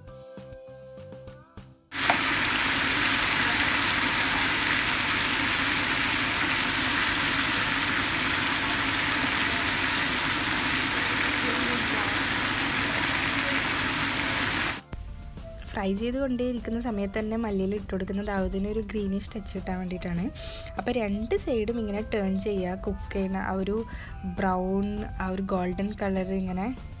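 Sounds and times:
music: 0:00.0 - 0:27.0
chicken sizzling in a pan: 0:02.0 - 0:14.8.

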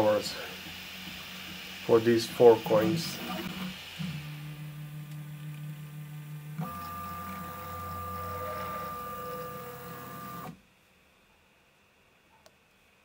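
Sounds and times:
three d printer motor whine: 0:00.0 - 0:10.6
faint click: 0:12.3 - 0:12.8.

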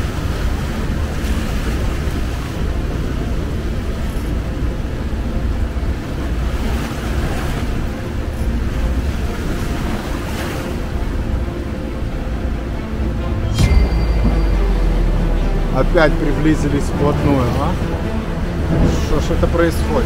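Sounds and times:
churning whitewater: 0:00.0 - 0:20.0
waterfall roaring: 0:09.1 - 0:20.0.

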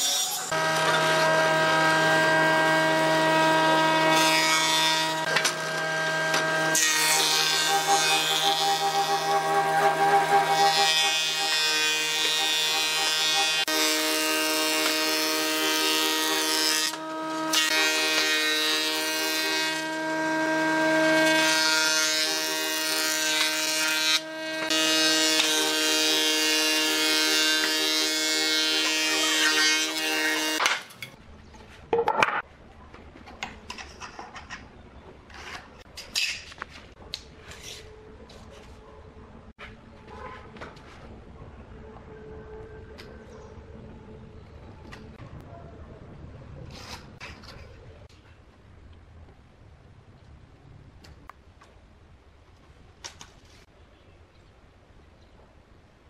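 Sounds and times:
wood planer whining: 0:00.0 - 0:30.7.

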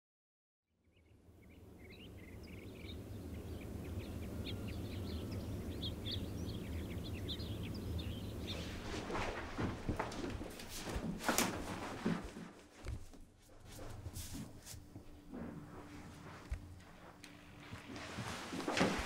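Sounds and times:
small birds chirping: 0:00.8 - 0:10.7
low room hum: 0:00.9 - 0:19.0
rustling and clatter: 0:08.4 - 0:19.0.

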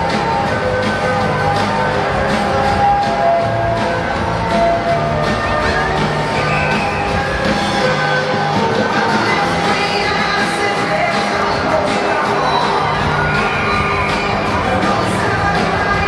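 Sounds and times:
crowd noise: 0:00.0 - 0:16.0
music with singing: 0:00.0 - 0:16.0.

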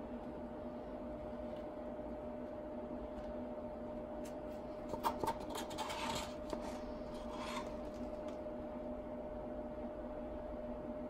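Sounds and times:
steady low hum: 0:00.0 - 0:11.0
wooden stick scraping and tapping: 0:04.9 - 0:08.0.

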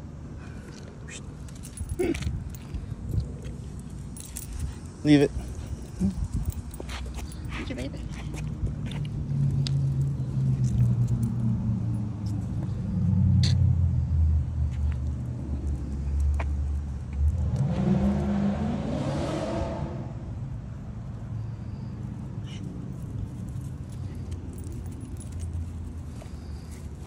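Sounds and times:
motor vehicle passing: 0:00.8 - 0:20.8.

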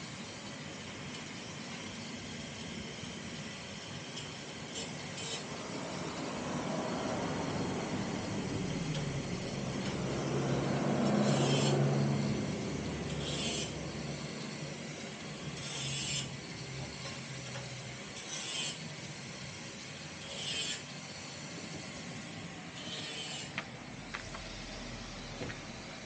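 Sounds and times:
vehicle engine passing: 0:05.5 - 0:14.8, 0:23.8 - 0:26.0.

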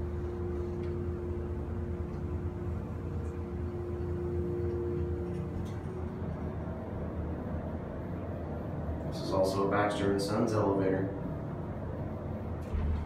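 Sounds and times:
elevator pump humming: 0:00.0 - 0:13.0
low drone: 0:00.0 - 0:13.0.

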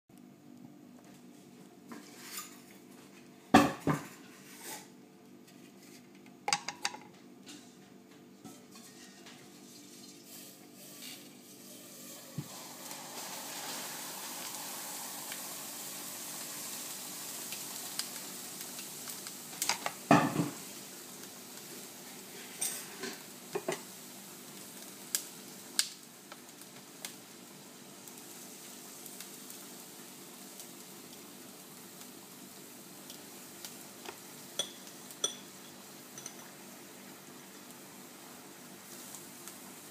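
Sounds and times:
knocks and clinks of utensils: 0:06.5 - 0:07.6, 0:34.6 - 0:36.5
liquid nitrogen hissing: 0:09.0 - 0:39.9.

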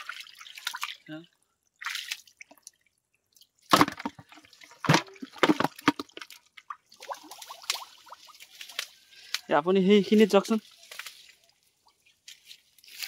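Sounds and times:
shallow water splashing: 0:00.0 - 0:09.3
water dripping: 0:00.0 - 0:09.4.

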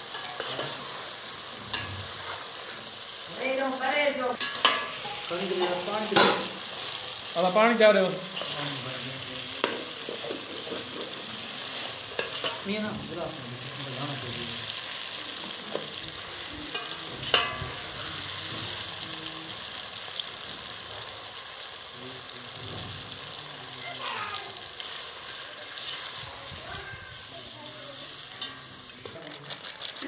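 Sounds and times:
curry sizzling in a pot: 0:00.0 - 0:30.0.

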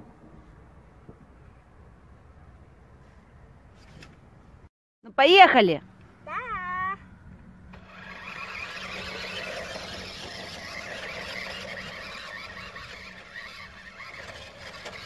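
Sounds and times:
toy car motor whirring: 0:07.7 - 0:15.0.

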